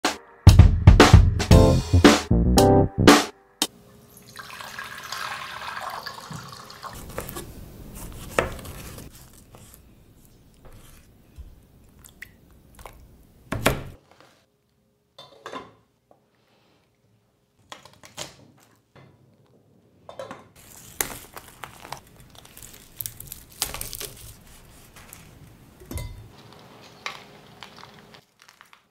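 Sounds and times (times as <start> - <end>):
water pouring into saucepan: 4.1 - 7.0
knife cutting on plastic board: 7.2 - 9.8.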